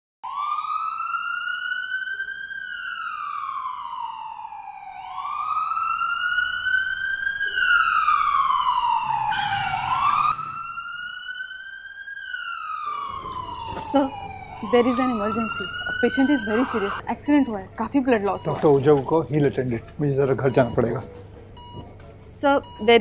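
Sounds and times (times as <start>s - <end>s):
ambulance siren wailing: 0.2s - 21.8s.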